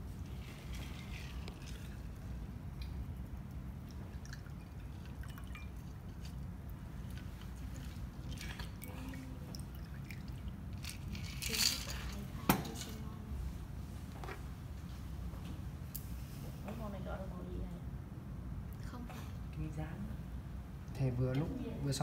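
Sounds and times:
low room hum: 0.0s - 22.0s
liquid trickling and dripping: 0.1s - 11.6s
metal clinking on glass: 4.6s - 5.8s.

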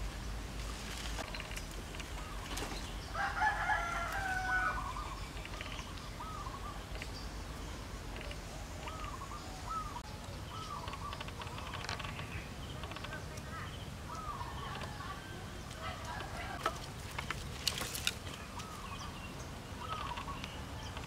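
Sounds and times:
short chirping calls: 4.6s - 15.2s, 18.4s - 21.0s
animal calling: 8.1s - 16.7s, 19.8s - 21.0s.

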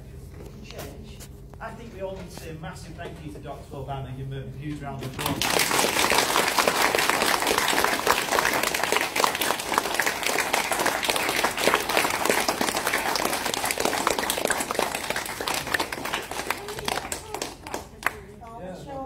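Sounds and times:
children applauding: 5.2s - 18.2s.

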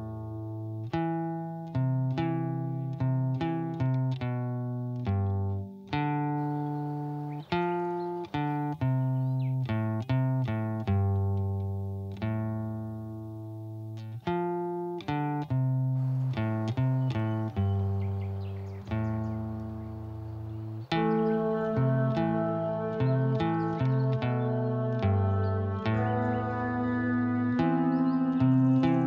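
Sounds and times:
plucked guitar melody: 0.0s - 29.0s.

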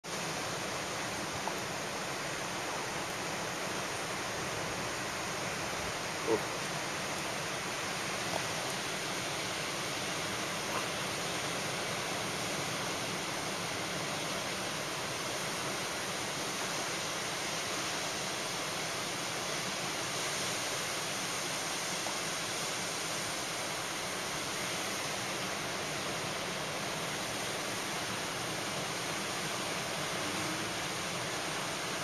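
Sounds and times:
ocean surf rushing: 18.1s - 32.0s.

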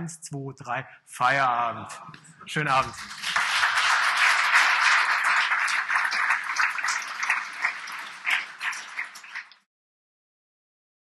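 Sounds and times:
audience applauding: 2.7s - 9.7s.

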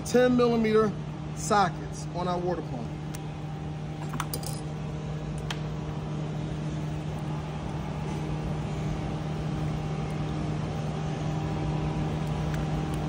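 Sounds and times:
shop machinery humming: 0.0s - 13.0s
metal tools clicking: 4.1s - 4.6s.

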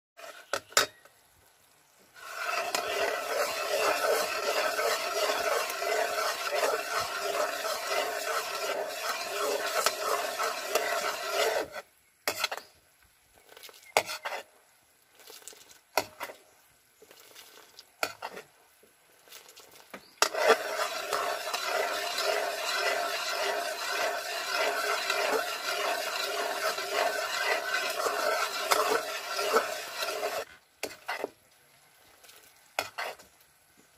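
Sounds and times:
metal ladle scraping a wok: 0.2s - 1.0s, 2.2s - 12.7s, 13.6s - 14.5s, 17.1s - 18.5s, 20.2s - 31.3s, 32.8s - 33.3s
syrup bubbling: 2.2s - 11.8s, 19.1s - 31.3s.

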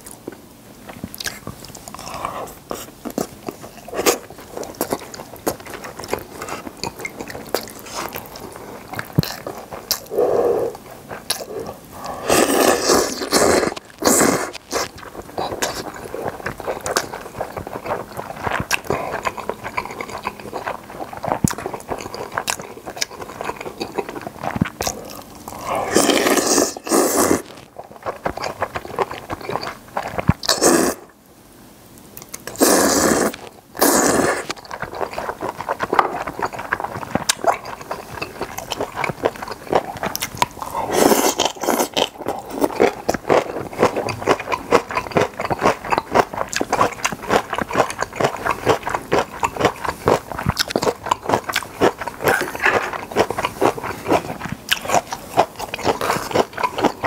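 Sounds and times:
wet chewing and mouth clicks: 0.0s - 31.1s, 32.2s - 57.0s
slurping noodles: 7.3s - 22.6s, 23.2s - 31.1s, 32.5s - 51.0s.

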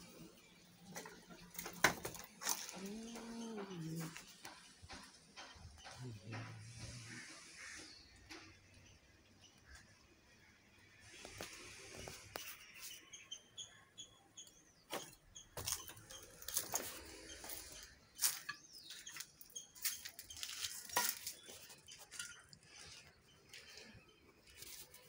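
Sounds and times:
footsteps crunching over debris: 1.5s - 4.2s, 14.9s - 25.0s.

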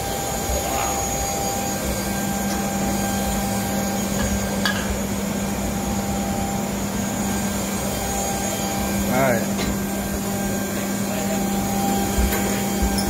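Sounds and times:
burner blower and flames roaring: 0.0s - 13.0s
steady hum: 0.0s - 13.0s.

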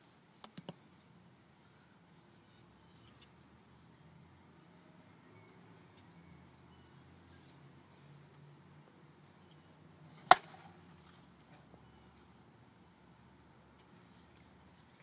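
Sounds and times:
bat striking softball: 10.2s - 10.8s.

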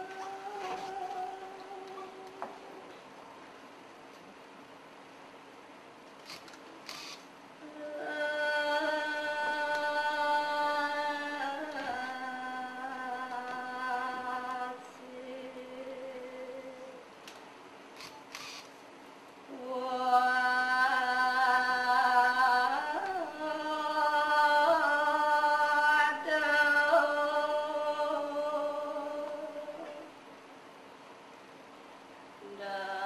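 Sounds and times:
person singing slow chant: 0.0s - 2.9s, 7.6s - 17.1s, 19.5s - 30.2s, 32.4s - 33.0s.

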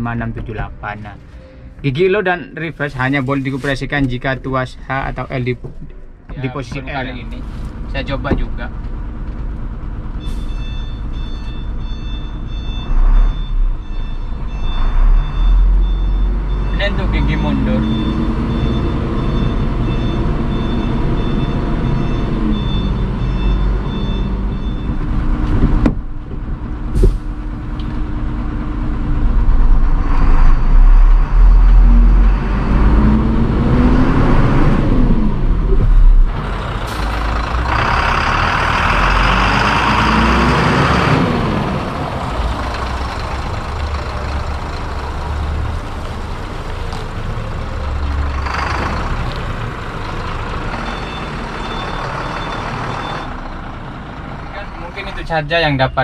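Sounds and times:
diesel truck engine revving: 6.5s - 56.0s
reverse warning tone: 10.2s - 25.5s, 47.7s - 53.9s.

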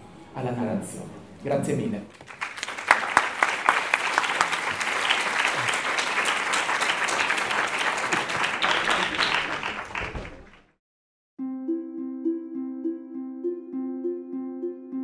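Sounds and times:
audience applauding: 2.1s - 10.8s.

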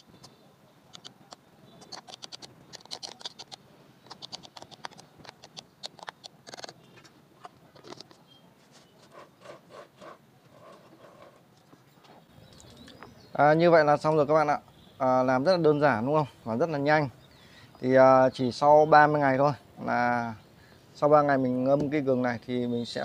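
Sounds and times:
metal spoon scratching plastic jar: 1.8s - 6.7s.

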